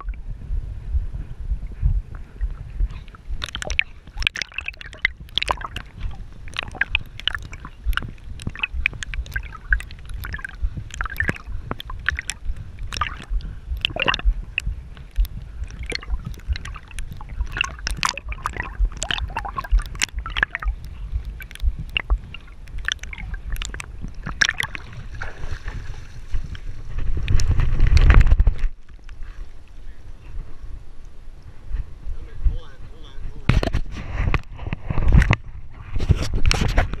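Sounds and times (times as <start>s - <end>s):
deep rumbling: 0.0s - 37.0s
dog paddling splashing water: 2.8s - 27.6s.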